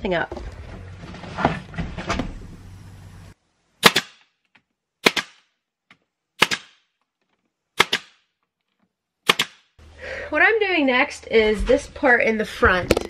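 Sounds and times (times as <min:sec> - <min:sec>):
nail gun firing into wood: 0:03.8 - 0:04.3, 0:05.0 - 0:05.4, 0:06.4 - 0:06.8, 0:07.8 - 0:08.2, 0:09.2 - 0:09.6.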